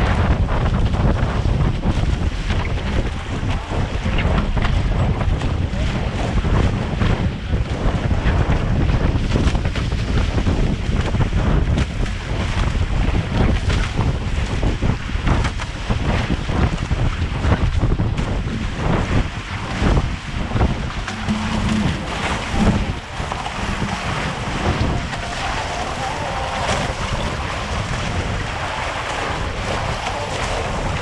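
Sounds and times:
water rushing past hull: 0.0s - 31.0s
wind buffeting microphone: 0.0s - 31.0s.

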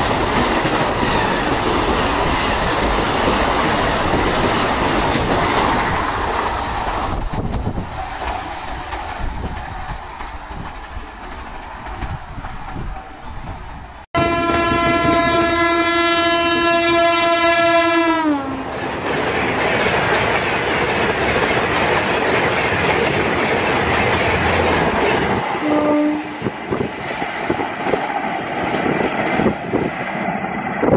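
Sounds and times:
train wheel clatter: 0.0s - 14.0s, 18.6s - 30.0s
train coaches rushing past: 0.0s - 30.9s
train horn blast: 14.2s - 18.7s, 25.6s - 26.5s.

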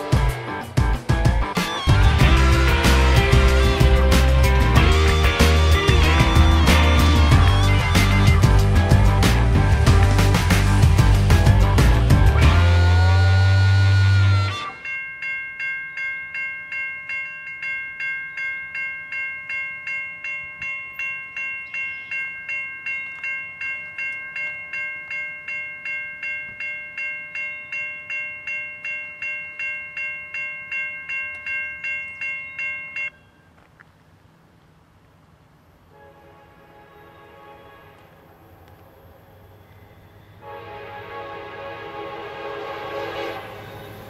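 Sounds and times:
railroad crossing bell ringing: 1.6s - 33.6s.

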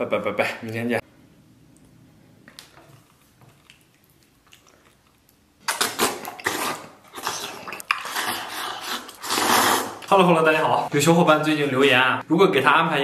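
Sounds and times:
man slurping and chewing noodles: 2.9s - 10.2s.

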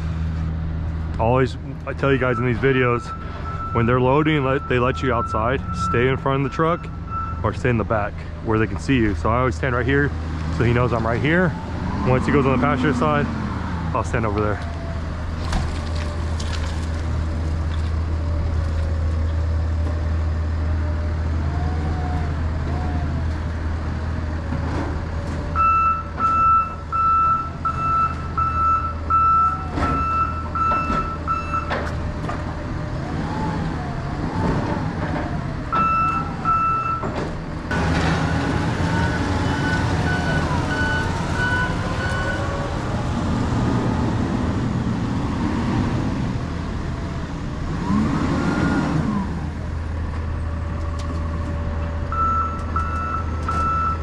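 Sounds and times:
backup alarm beeping: 2.2s - 7.5s, 25.6s - 31.7s, 35.7s - 37.1s, 38.9s - 42.5s, 52.1s - 54.0s
forklift engine revving: 9.4s - 16.3s, 18.0s - 54.0s.

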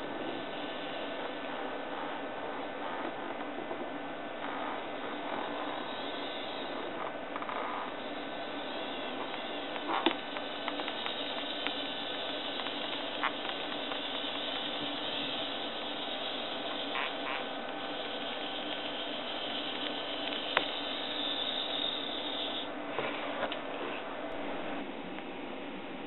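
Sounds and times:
toy tracked vehicle whirring: 4.4s - 22.7s.

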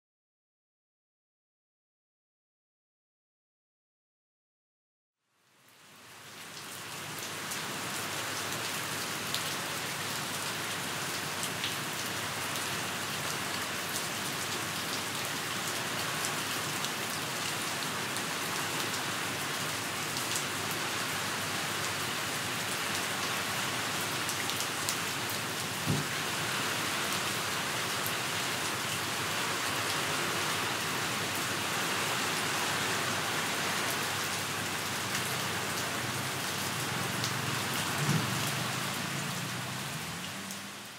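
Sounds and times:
steady rain on hard surfaces: 5.3s - 40.9s
low thump: 25.9s - 26.1s.

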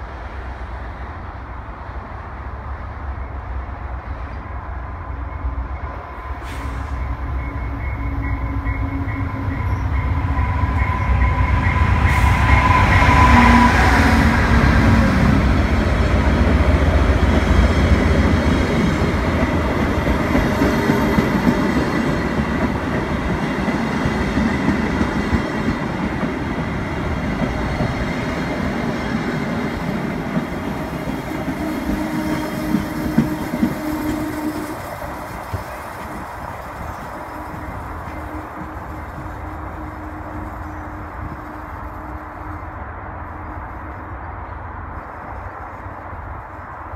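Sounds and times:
train coaches rumbling: 0.0s - 46.9s
train wheels clickety-clack: 6.4s - 42.1s.

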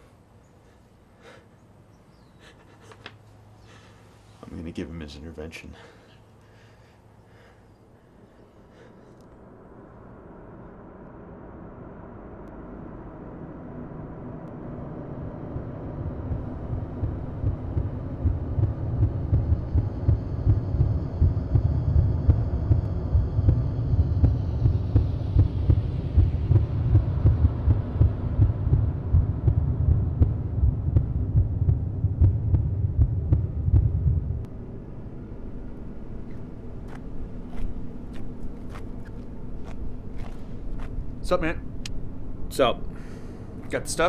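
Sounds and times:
throbbing bass pulse: 9.8s - 41.3s.

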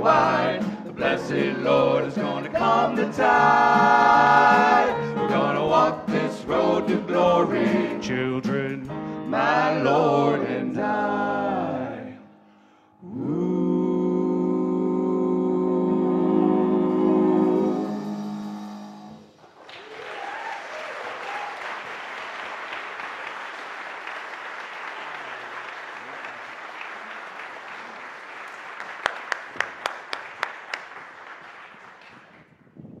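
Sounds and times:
congregation applauding: 19.2s - 32.6s.

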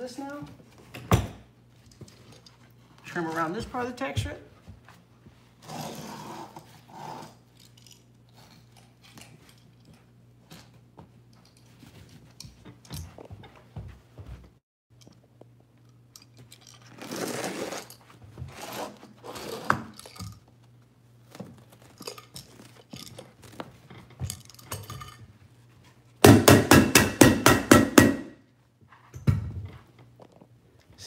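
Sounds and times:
knife scraping and rustling foam: 16.9s - 19.8s
sharp knocks: 26.2s - 28.4s.

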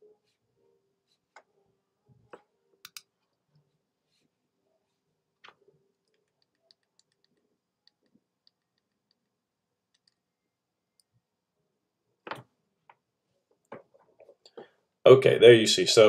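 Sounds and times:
small buttons clicking: 2.8s - 3.1s.

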